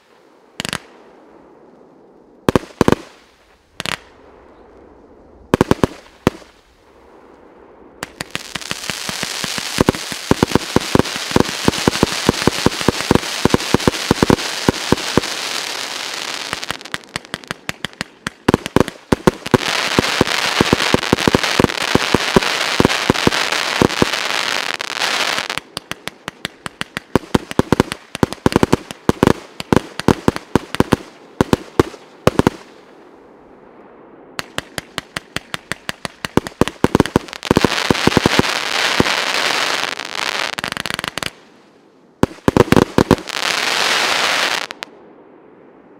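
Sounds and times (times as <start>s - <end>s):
dense fireworks crackling: 0.0s - 45.9s
fireworks bangs: 5.5s - 7.2s, 7.8s - 32.9s, 34.4s - 41.5s, 42.2s - 44.9s.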